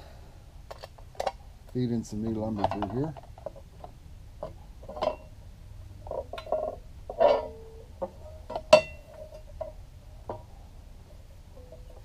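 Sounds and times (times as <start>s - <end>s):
rustle: 0.0s - 12.0s
light clicks and knocks: 2.4s - 5.2s
sharp ringing metal clack: 8.6s - 9.5s.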